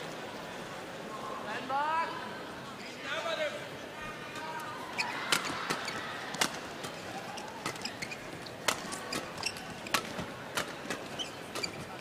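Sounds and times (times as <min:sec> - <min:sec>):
shoes squeaking on court floor: 0:04.3 - 0:12.0
racket hitting shuttlecock: 0:05.3 - 0:07.0, 0:08.6 - 0:11.8.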